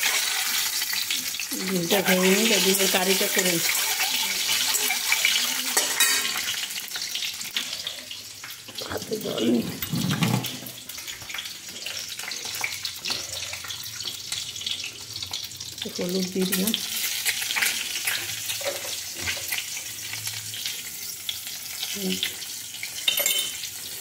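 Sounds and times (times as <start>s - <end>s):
eggs sizzling in hot oil: 0.0s - 24.0s
metal spatula scraping pan: 1.9s - 6.6s.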